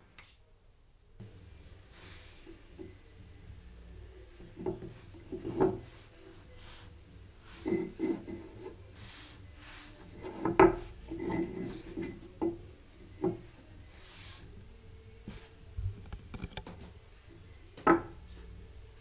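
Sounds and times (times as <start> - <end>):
plane scraping on benchtop: 7.4 - 12.4.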